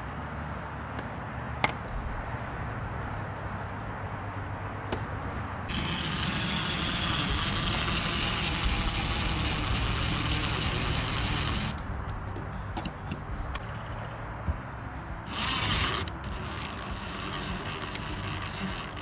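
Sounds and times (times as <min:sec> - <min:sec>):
impact driver running: 0:05.7 - 0:11.7, 0:15.2 - 0:19.0.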